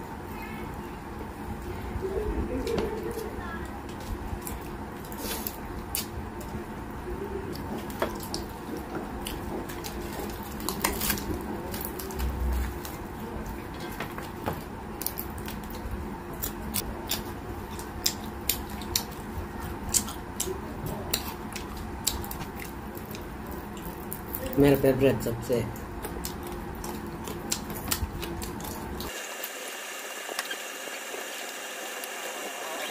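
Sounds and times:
low bump: 0:12.2 - 0:13.2
crisp chewing clicks: 0:15.0 - 0:24.6, 0:25.7 - 0:29.1
wet smacking while eating: 0:16.4 - 0:24.4, 0:26.0 - 0:29.1.

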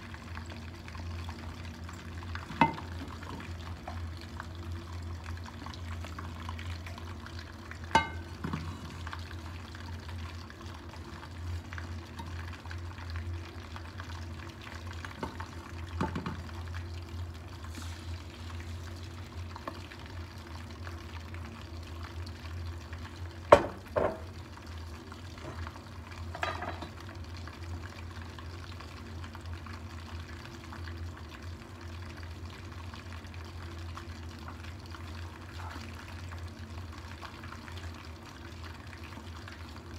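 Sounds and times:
eggs frying in oil: 0:00.0 - 0:39.9
kitchenware clinking: 0:02.5 - 0:02.9, 0:08.0 - 0:08.8, 0:26.4 - 0:27.0.

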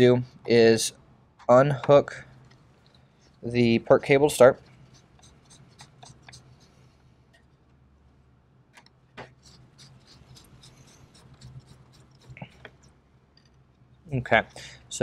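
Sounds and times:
low steady hum: 0:00.0 - 0:15.0
screwdriver scraping and clicking: 0:04.9 - 0:06.7, 0:09.2 - 0:13.6.

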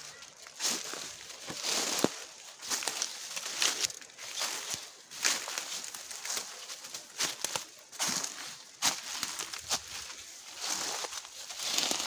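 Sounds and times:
footsteps crunching dry leaves: 0:00.0 - 0:12.0.

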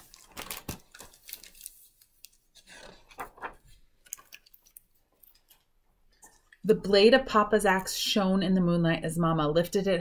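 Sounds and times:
pages rustling: 0:00.0 - 0:05.6.

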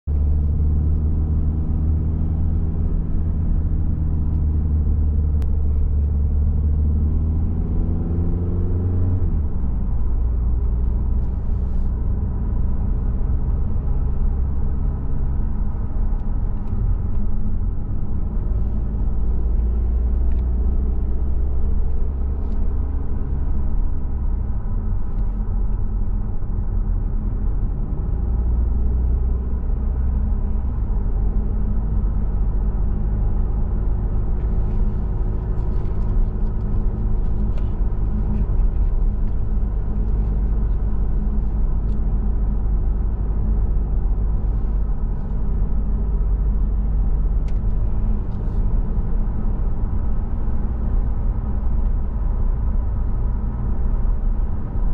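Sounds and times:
road noise: 0:00.0 - 0:54.9
car engine revving: 0:00.1 - 0:23.9.

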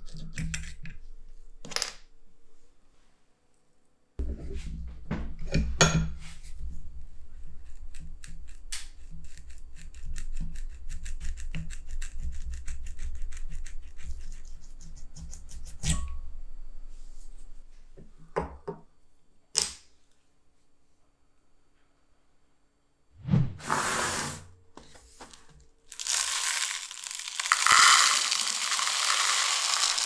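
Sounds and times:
low rubbing rumble: 0:23.2 - 0:23.7.

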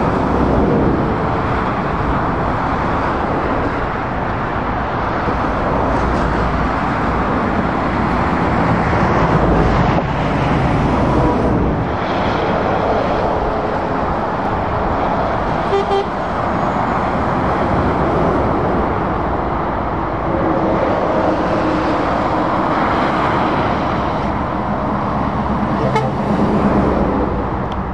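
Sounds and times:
traffic passing on road: 0:00.0 - 0:27.9.

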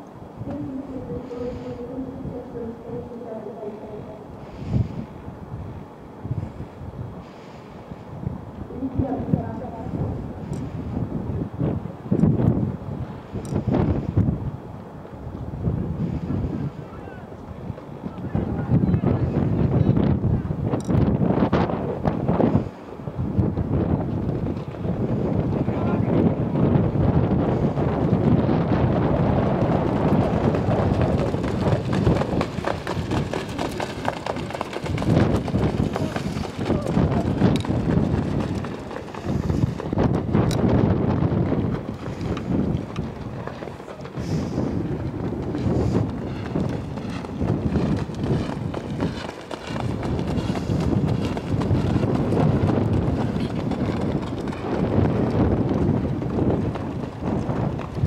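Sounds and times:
wind rumble on microphone: 0:00.0 - 0:58.0
trotting horse hoofbeats on dirt: 0:23.4 - 0:58.0.

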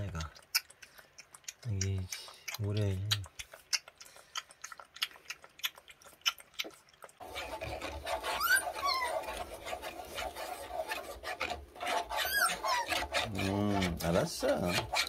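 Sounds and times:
puppy lapping milk: 0:00.0 - 0:15.0
spoon scraping bowl: 0:07.2 - 0:15.0
puppy whining: 0:07.3 - 0:09.7, 0:11.9 - 0:13.2.

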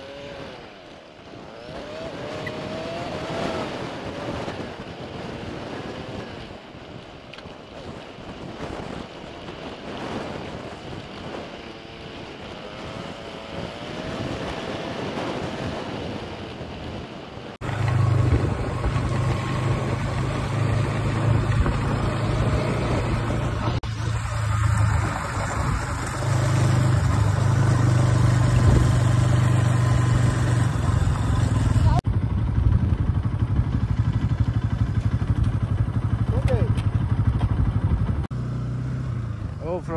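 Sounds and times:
wind buffeting microphone: 0:01.4 - 0:38.3
motorcycle engine running: 0:17.6 - 0:39.9.

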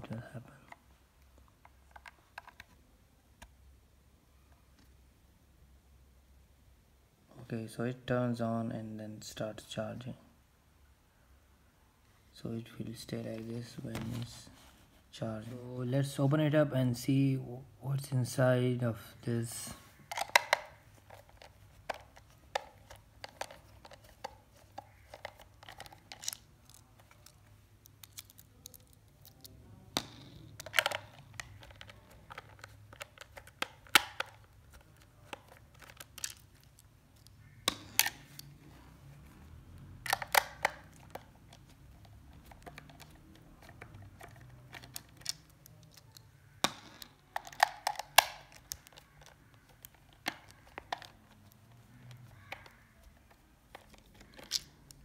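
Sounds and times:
screwdriver clicks and scraping: 0:20.1 - 0:29.4, 0:40.1 - 0:55.0.

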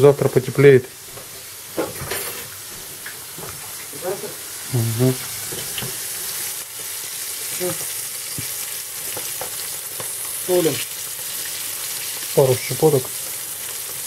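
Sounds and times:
fish sizzling in oil: 0:00.0 - 0:14.0.

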